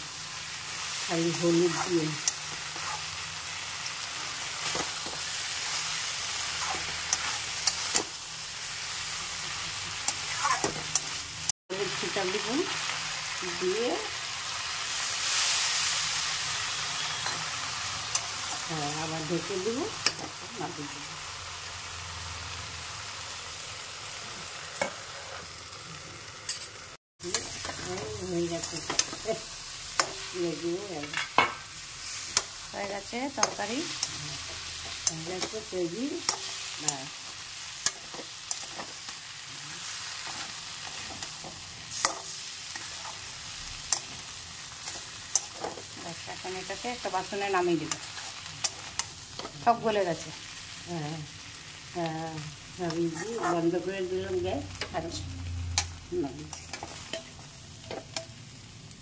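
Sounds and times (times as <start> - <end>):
vegetables sizzling in a pan: 0.0 - 59.0
spatula scraping a pan: 1.7 - 3.2, 3.8 - 8.2, 9.5 - 11.2, 52.9 - 53.7
spatula scraping metal pan: 52.9 - 53.7.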